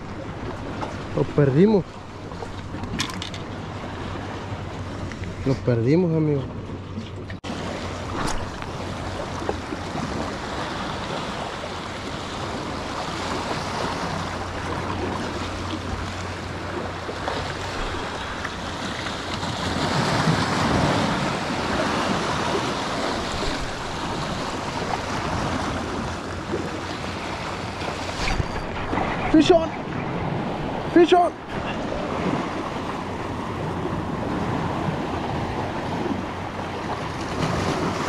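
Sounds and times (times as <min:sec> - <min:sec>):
surf washing against stone: 0:07.4 - 0:33.6.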